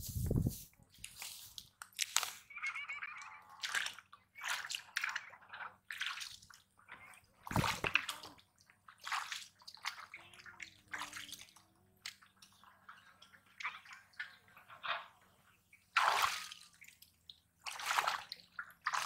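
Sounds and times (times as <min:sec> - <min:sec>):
feet sloshing in water: 0:03.6 - 0:06.7, 0:07.4 - 0:11.6, 0:15.9 - 0:17.0, 0:17.6 - 0:19.0.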